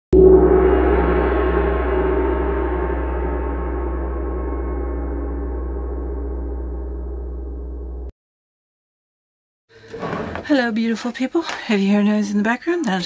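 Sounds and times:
deep ringing strike: 0:00.1 - 0:08.1.

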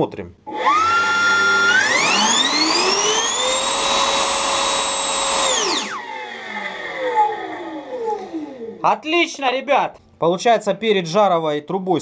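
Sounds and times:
electric motor whine: 0:00.5 - 0:08.8.

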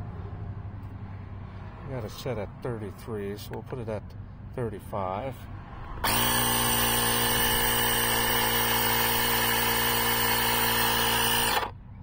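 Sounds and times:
air compressor running: 0:06.0 - 0:11.8.

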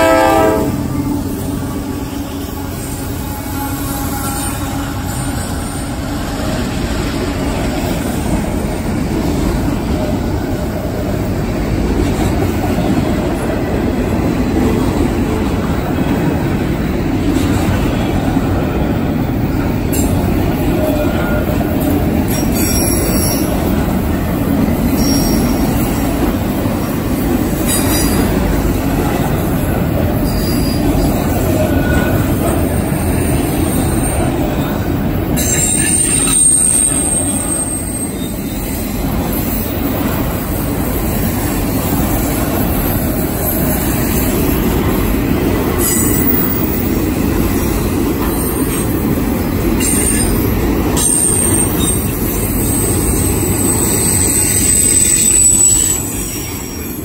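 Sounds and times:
freight train wheels rumbling on rail: 0:00.0 - 0:57.0
high-pitched wheel squeals: 0:24.9 - 0:25.7, 0:30.2 - 0:32.4, 0:35.4 - 0:39.7, 0:51.0 - 0:57.0.

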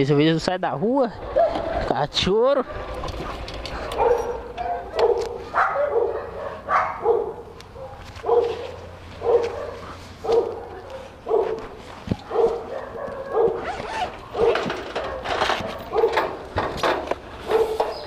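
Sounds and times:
dog barking: 0:01.2 - 0:01.7, 0:03.9 - 0:15.3, 0:17.5 - 0:17.9.

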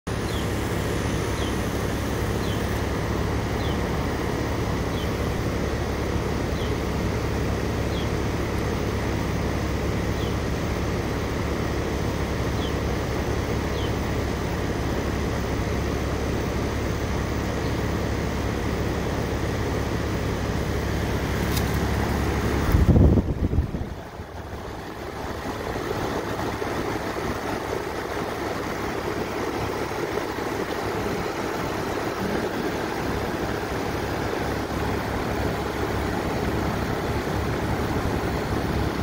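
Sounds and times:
air conditioner fan rushing: 0:00.1 - 0:39.0
constant low hum: 0:00.1 - 0:39.0.

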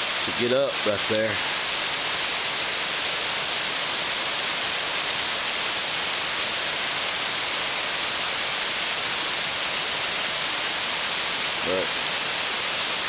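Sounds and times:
creek rushing over rocks: 0:00.0 - 0:13.0.

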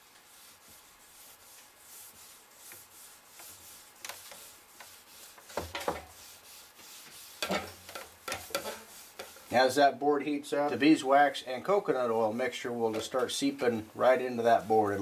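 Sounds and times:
hand rubbing wooden board: 0:00.0 - 0:09.6.

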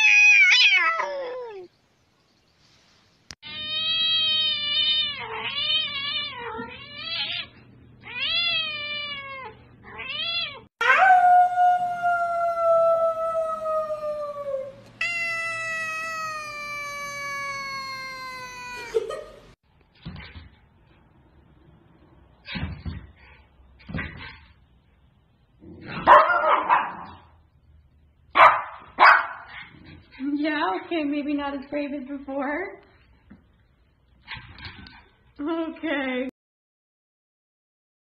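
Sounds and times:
cats meowing: 0:00.0 - 0:01.7, 0:03.4 - 0:10.7, 0:14.9 - 0:19.0.

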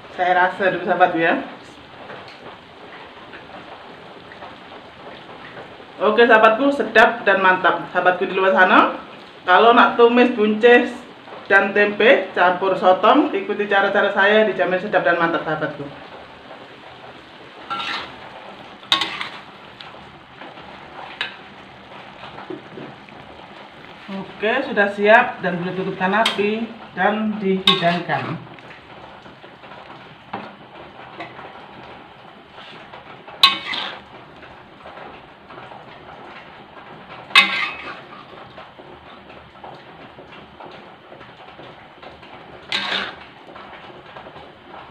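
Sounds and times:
food sizzling in a wok: 0:00.0 - 0:44.9
metal spatula clanking on wok: 0:17.7 - 0:18.2, 0:18.9 - 0:19.5, 0:26.2 - 0:26.5, 0:27.6 - 0:28.4, 0:33.4 - 0:34.0, 0:37.3 - 0:38.1, 0:42.7 - 0:43.2.

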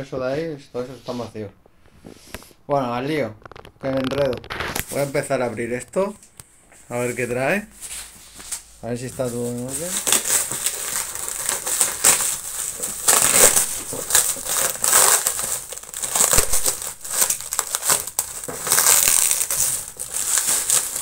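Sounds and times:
plastic wrap crinkling and snapping: 0:03.3 - 0:07.3, 0:07.9 - 0:21.0
knife cutting plastic wrap: 0:09.2 - 0:21.0.

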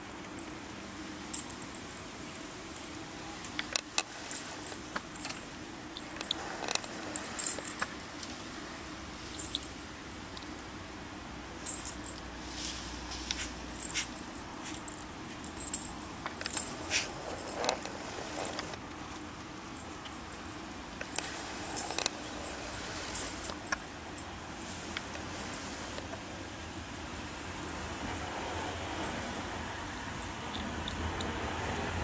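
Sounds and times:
dog tags jingling: 0:02.8 - 0:08.0, 0:09.3 - 0:09.8, 0:11.6 - 0:12.3, 0:13.4 - 0:18.8.

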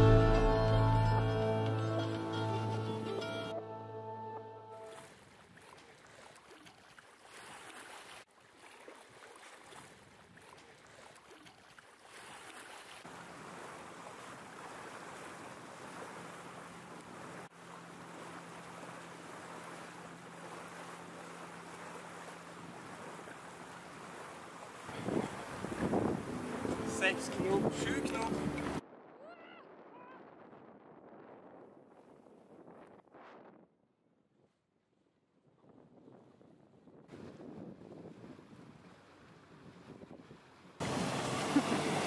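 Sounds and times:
water rushing along a hull: 0:04.8 - 0:30.4, 0:36.2 - 0:42.0
low engine hum: 0:37.1 - 0:42.0.

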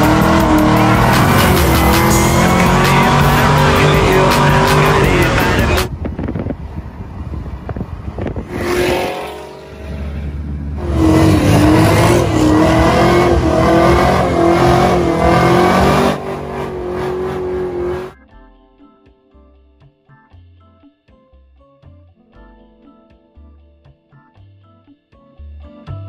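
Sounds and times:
car engine running: 0:00.0 - 0:18.2.

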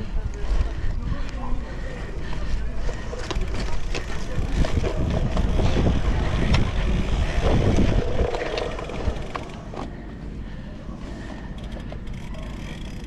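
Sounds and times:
bike tyres rumbling and rattling: 0:00.0 - 0:13.0
wind buffeting microphone: 0:03.4 - 0:09.4.

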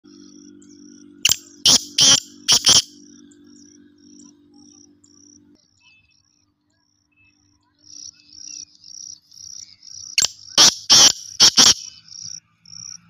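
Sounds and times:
insects chirping: 0:00.0 - 0:13.0
harsh bird call: 0:01.3 - 0:02.9, 0:10.2 - 0:12.1.

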